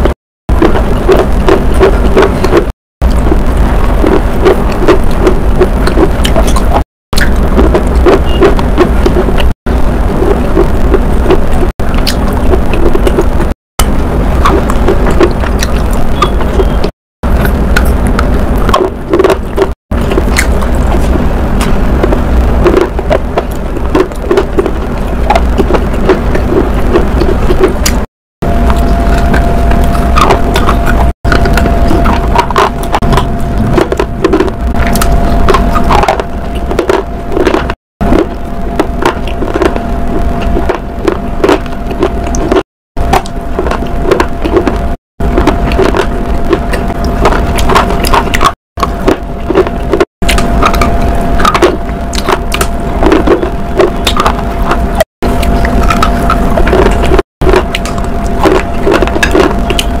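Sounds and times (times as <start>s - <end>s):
steady low hum: 0.0s - 60.0s
crunchy chewing: 28.6s - 60.0s.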